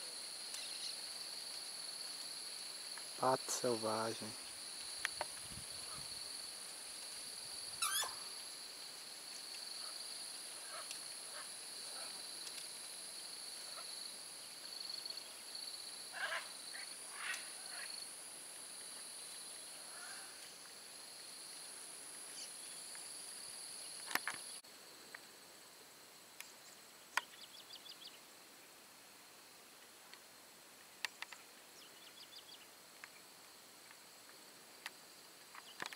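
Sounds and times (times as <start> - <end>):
high insect drone: 0.0 - 35.9
short bird calls: 7.8 - 8.3.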